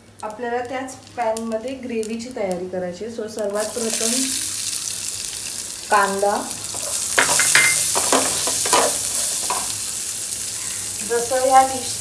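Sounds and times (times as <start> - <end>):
onions sizzling in hot oil: 0.0 - 12.0
wooden spatula stirring in pan: 6.6 - 9.8.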